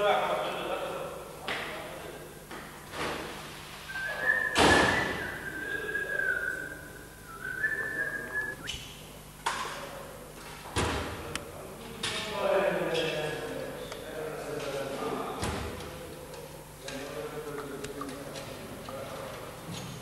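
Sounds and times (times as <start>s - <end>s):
person whistling: 3.9s - 8.8s
loud thud: 4.5s - 5.3s.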